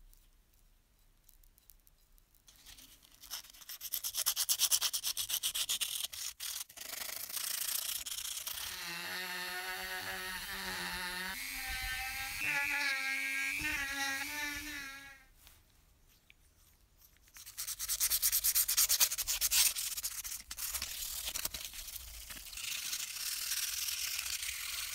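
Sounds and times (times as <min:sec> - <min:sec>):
sandpaper rubbing metal: 0:03.1 - 0:15.2, 0:17.4 - 0:24.9
rotary tool whining: 0:07.4 - 0:15.3.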